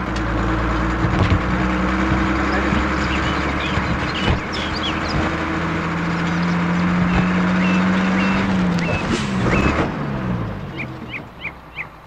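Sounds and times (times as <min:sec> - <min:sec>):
bus engine droning: 0:00.0 - 0:12.0
bird chirps: 0:02.8 - 0:05.5, 0:06.2 - 0:09.8, 0:10.7 - 0:12.0.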